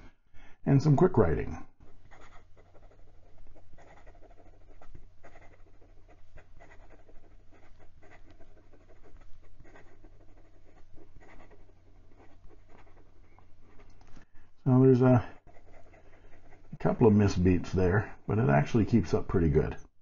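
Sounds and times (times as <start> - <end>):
fountain pen writing on paper: 1.8 - 13.9, 15.3 - 16.8.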